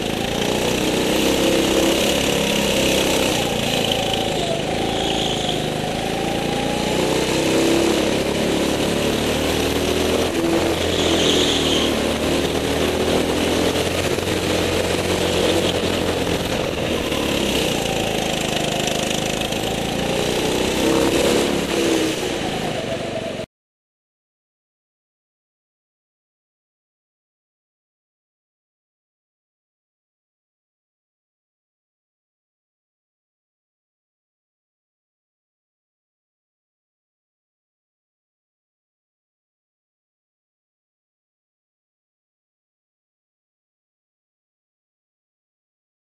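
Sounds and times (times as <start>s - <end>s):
go-kart engine revving: 0.0s - 23.5s.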